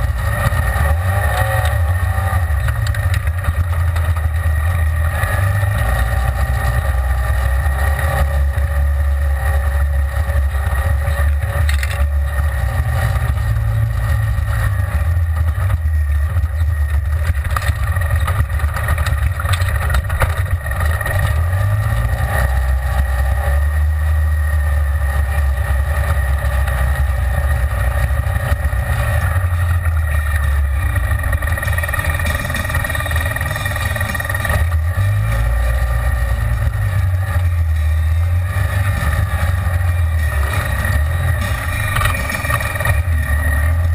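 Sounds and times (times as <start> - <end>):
utility vehicle engine droning: 0.0 - 43.9.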